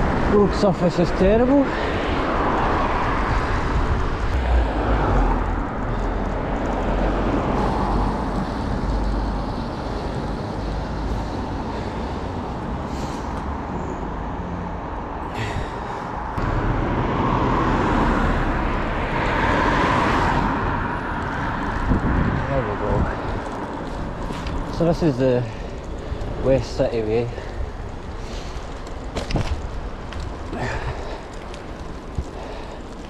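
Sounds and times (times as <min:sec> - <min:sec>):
bicycle tyre road rumble: 0:00.0 - 0:33.0
wind on microphone: 0:01.9 - 0:09.0, 0:19.3 - 0:24.7.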